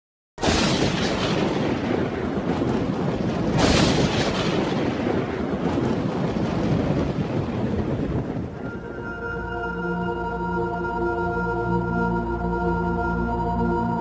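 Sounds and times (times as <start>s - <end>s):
loud thunder crack: 0.4s - 9.0s
rain rushing: 0.4s - 9.5s
thunder rumbling: 0.4s - 9.5s.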